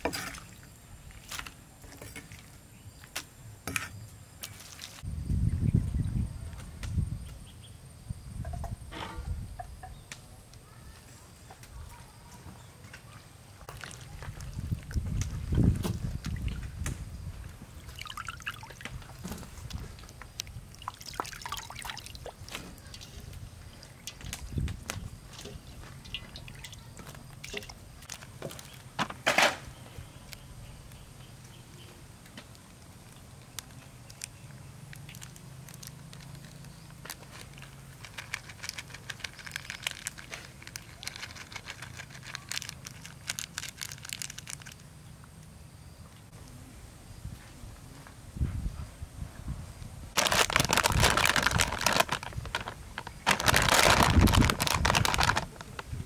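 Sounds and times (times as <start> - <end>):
water trickling and dripping: 17.8 - 28.0
plastic sachet crinkling: 27.3 - 28.8, 33.6 - 44.9, 50.2 - 55.9.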